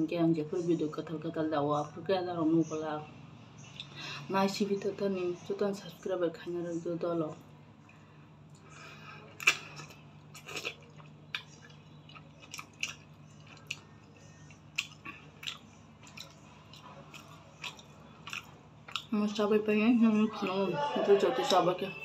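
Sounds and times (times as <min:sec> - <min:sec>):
wet mouth clicks and smacks: 0:09.4 - 0:13.9, 0:14.5 - 0:19.1
person chewing and slurping noodles: 0:09.4 - 0:19.1.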